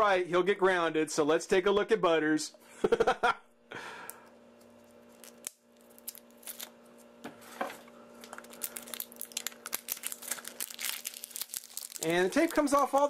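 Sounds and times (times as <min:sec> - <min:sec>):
faint steady hum: 0:00.0 - 0:13.0
plastic tape peeling crackles: 0:04.6 - 0:06.8, 0:08.2 - 0:13.0.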